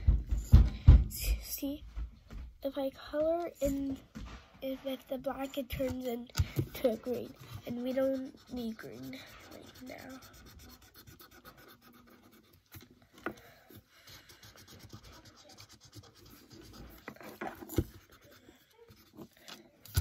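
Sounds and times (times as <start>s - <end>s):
marker scratching on paper: 4.6s - 12.9s, 13.7s - 19.4s.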